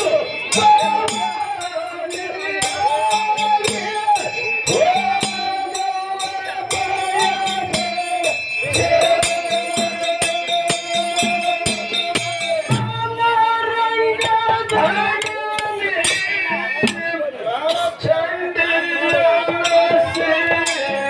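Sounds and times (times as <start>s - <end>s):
sharp clicking percussion: 0.0s - 13.4s, 14.1s - 21.0s
man singing long high notes: 0.0s - 21.0s.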